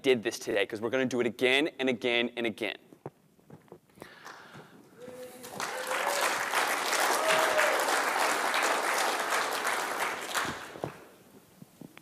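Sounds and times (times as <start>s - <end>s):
audience applauding: 4.2s - 11.1s.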